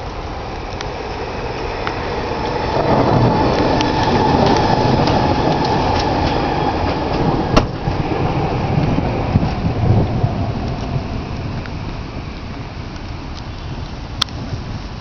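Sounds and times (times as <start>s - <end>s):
thunder rumbling: 0.0s - 13.4s
light ticks: 0.6s - 0.9s, 11.6s - 14.4s.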